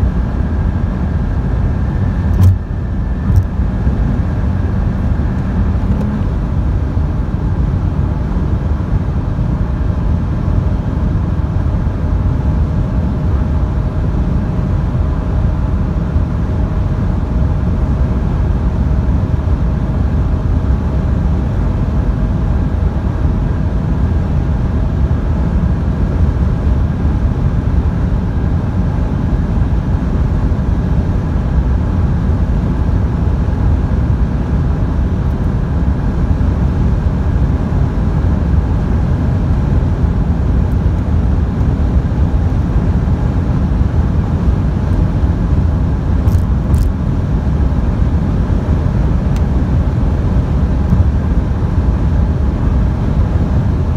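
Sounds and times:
road noise: 0:00.0 - 0:08.1, 0:38.3 - 0:53.9
car engine droning at full throttle: 0:00.0 - 0:53.9
wind noise: 0:18.9 - 0:53.9.

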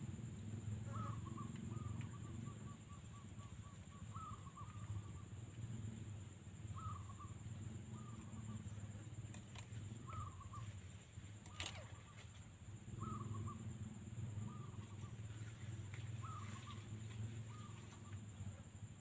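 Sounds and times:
quail calling: 0:00.8 - 0:05.2, 0:06.8 - 0:07.4, 0:10.0 - 0:10.7, 0:16.2 - 0:18.2.

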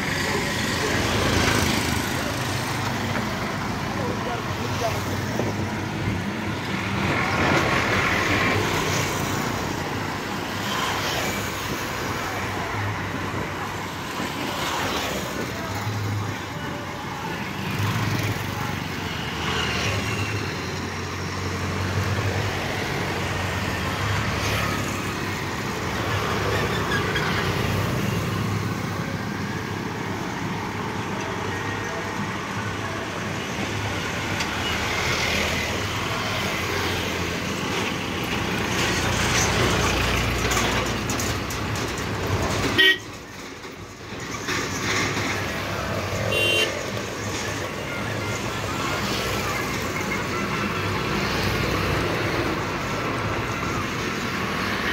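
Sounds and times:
road traffic noise: 0:00.0 - 0:54.9
vehicle horns: 0:42.7 - 0:43.2, 0:46.3 - 0:46.9.

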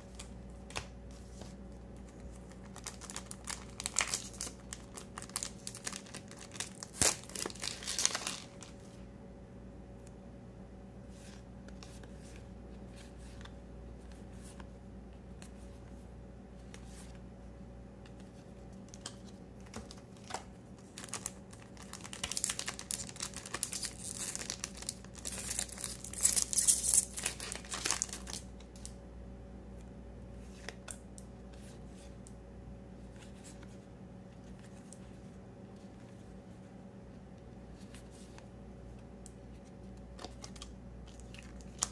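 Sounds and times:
wrapper crinkling and tearing: 0:02.4 - 0:08.8, 0:20.8 - 0:28.9
cards handled with faint ticks: 0:18.0 - 0:20.4.

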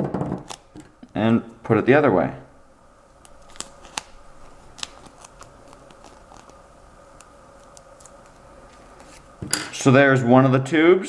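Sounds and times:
duct tape crinkling: 0:00.4 - 0:01.2, 0:03.2 - 0:09.4.

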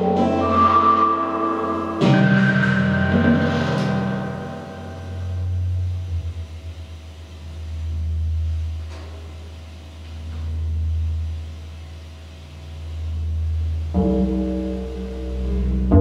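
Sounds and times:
sustained synthesizer chord: 0:00.0 - 0:08.9, 0:12.5 - 0:16.0
synthesizer bass drone: 0:00.0 - 0:16.0.

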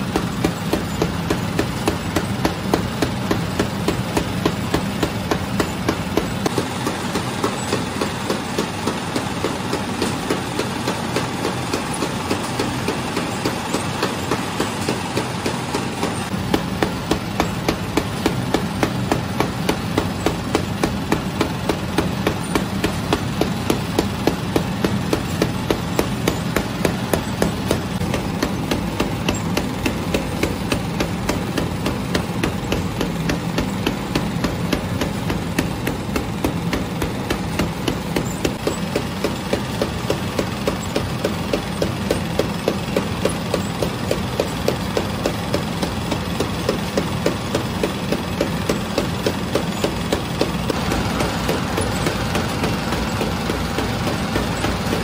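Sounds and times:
machine hum with clacking knocks: 0:00.0 - 0:55.0.

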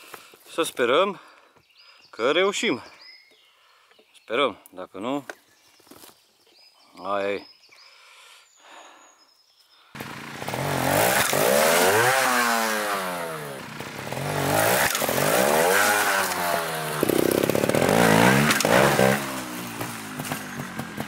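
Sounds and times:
motorcycle engine revving: 0:10.0 - 0:21.0.

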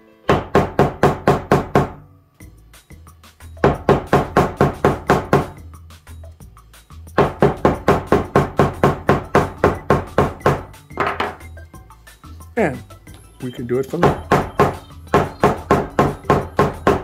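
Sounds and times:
mallet pounding leather: 0:00.3 - 0:02.0, 0:03.6 - 0:05.6, 0:07.1 - 0:11.5, 0:14.0 - 0:17.0.

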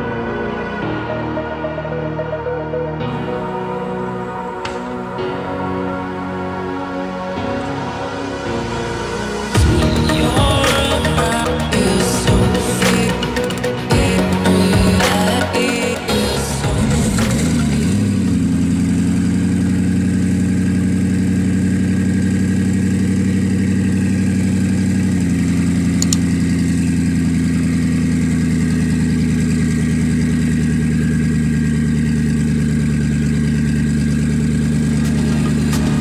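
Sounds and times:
car engine idling: 0:08.6 - 0:36.0.

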